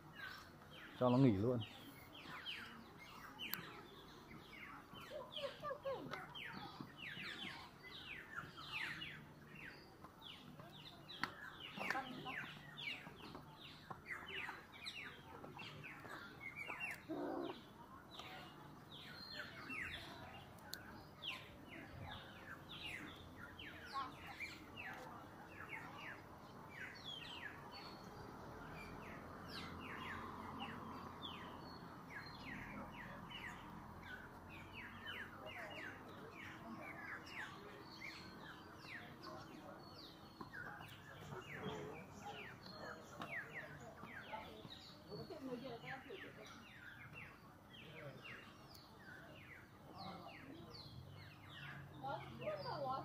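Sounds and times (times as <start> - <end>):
small birds chirping: 0.0 - 53.0.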